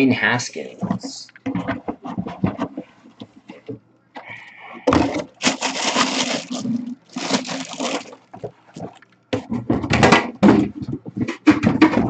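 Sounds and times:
plastic bag crinkling: 0:05.2 - 0:09.2.

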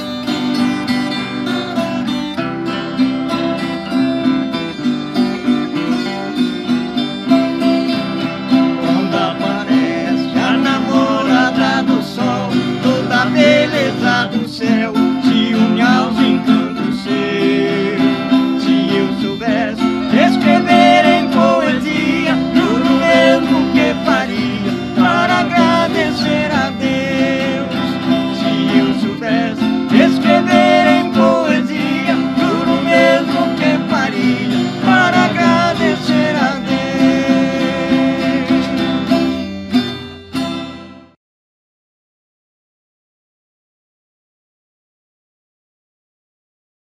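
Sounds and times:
acoustic guitars strummed: 0:00.0 - 0:41.2
men singing: 0:08.3 - 0:39.2.

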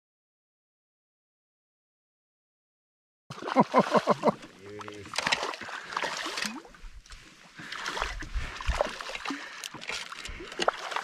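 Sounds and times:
fish splashing in water: 0:03.3 - 0:06.8, 0:07.5 - 0:11.0.

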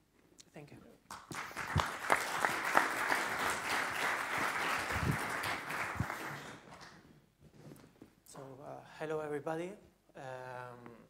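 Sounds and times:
audience applauding: 0:01.1 - 0:07.0.

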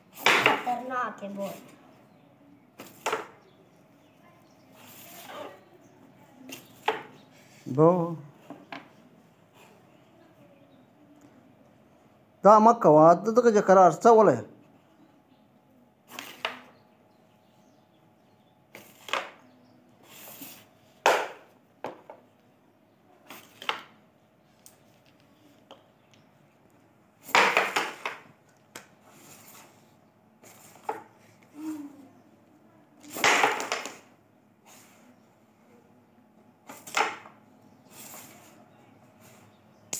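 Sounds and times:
wooden carrom pieces clacking: 0:00.2 - 0:01.2, 0:02.8 - 0:03.4, 0:06.5 - 0:07.2, 0:18.7 - 0:19.5, 0:21.0 - 0:22.2, 0:27.2 - 0:29.0, 0:33.1 - 0:34.1, 0:36.6 - 0:37.4.

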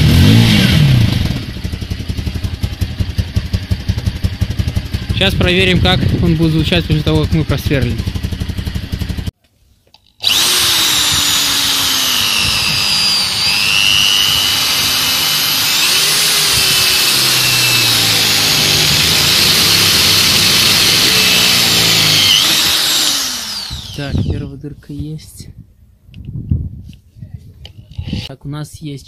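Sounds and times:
motorcycle engine idling: 0:00.0 - 0:09.3
electric drill boring steel: 0:10.2 - 0:24.4.

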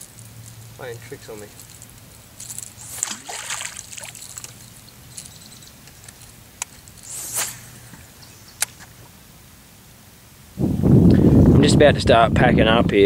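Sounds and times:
water sloshing against hull: 0:02.6 - 0:04.8
fishing rod swish: 0:02.8 - 0:04.6, 0:07.0 - 0:08.0.

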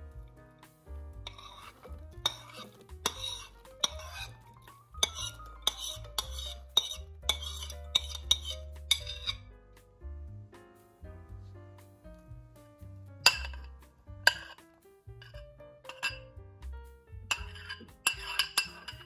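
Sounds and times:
soft piano music: 0:00.0 - 0:19.0
spoon scraping in bowl: 0:01.2 - 0:09.4, 0:13.3 - 0:13.7, 0:14.3 - 0:14.6, 0:15.2 - 0:16.2, 0:17.3 - 0:19.0.

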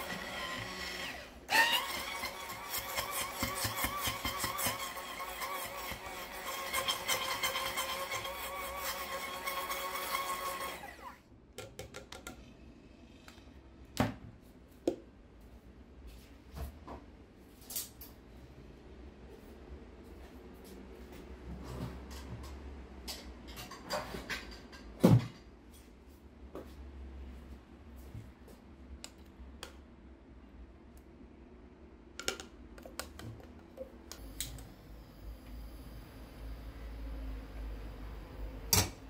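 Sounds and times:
blender motor whirring: 0:00.0 - 0:11.2.

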